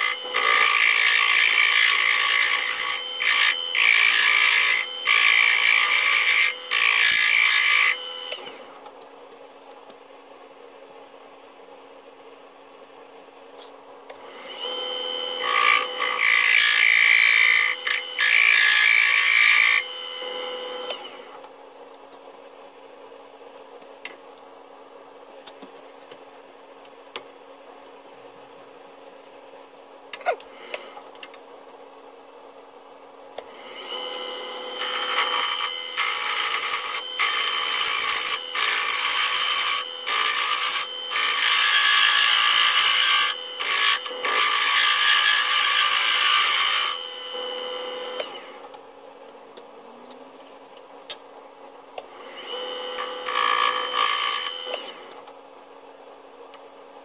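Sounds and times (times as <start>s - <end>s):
power tool cutting wood: 0.0s - 8.8s, 14.1s - 21.4s, 33.4s - 48.7s, 52.0s - 55.3s.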